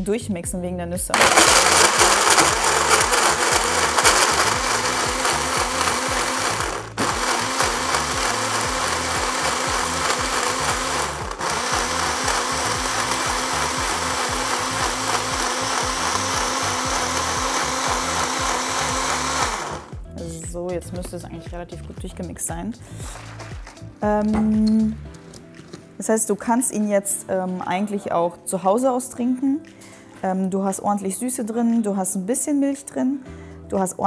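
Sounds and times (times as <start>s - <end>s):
blender grinding: 1.2s - 20.0s.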